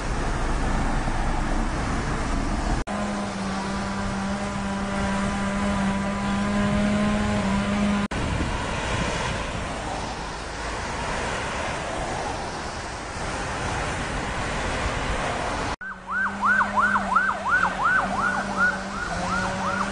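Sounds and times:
tyres hissing on wet road: 0.0 - 5.8, 8.2 - 15.8
emergency siren yelping: 15.8 - 19.9.

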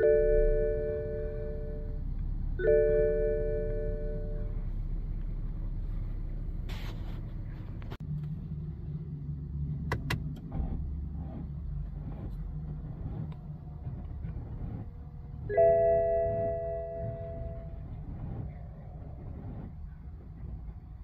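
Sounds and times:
car warning chime: 0.0 - 4.8, 15.5 - 17.9
steady low rumble: 0.0 - 21.0.

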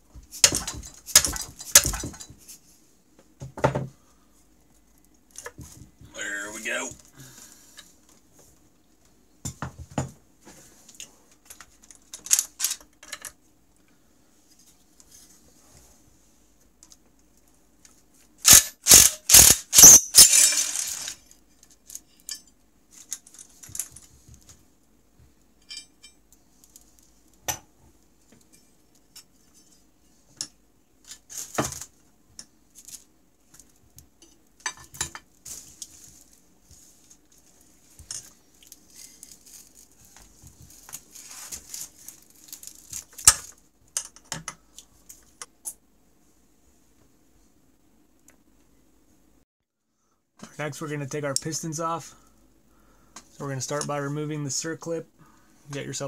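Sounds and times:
impact driver bursts: 18.4 - 21.2
metal tools clinking: 18.5 - 21.2, 25.6 - 26.2.

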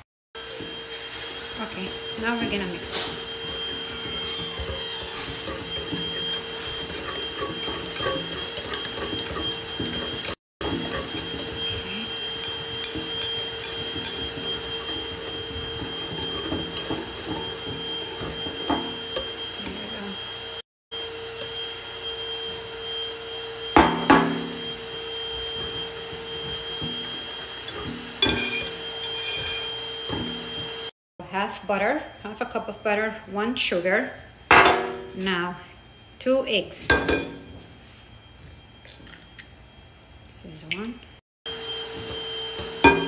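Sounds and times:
whisk scraping glass bowl: 0.7 - 20.6, 21.2 - 30.9, 42.0 - 43.0.

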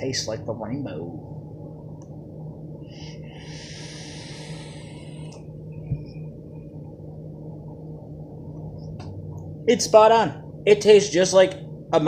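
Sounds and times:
soft breath out: 2.8 - 5.4
airy vape draw hiss: 3.0 - 5.4.

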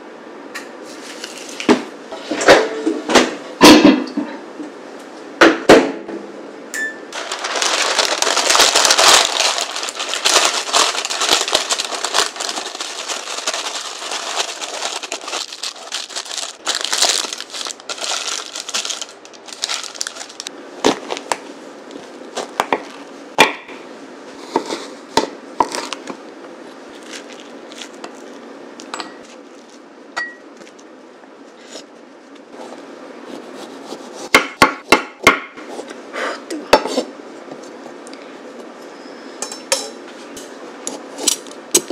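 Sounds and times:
parchment paper crinkling: 7.2 - 21.3, 26.9 - 28.5
knife chopping squash: 33.4 - 35.5.

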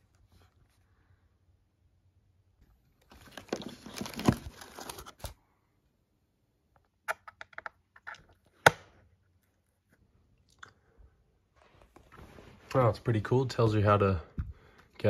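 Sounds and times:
plastic wrapping crinkling: 3.0 - 5.4.

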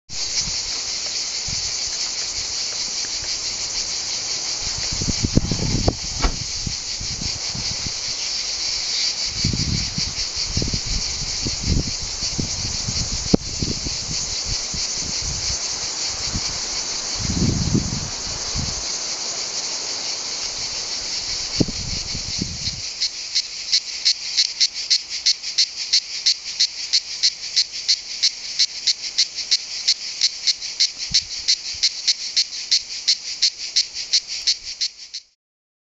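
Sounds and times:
cicadas buzzing: 0.1 - 35.4
low thuds and rumbles: 4.6 - 8.0.

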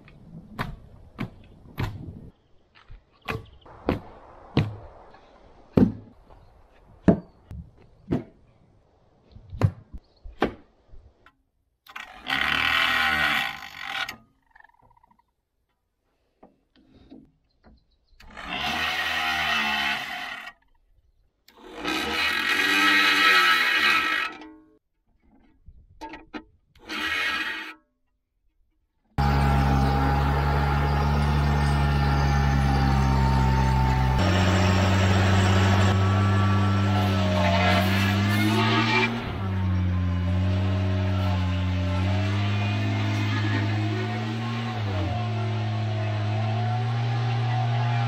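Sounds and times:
electric grinder on saw blade: 11.9 - 14.1, 18.3 - 20.6, 21.6 - 24.4, 26.8 - 27.7, 29.2 - 48.0.

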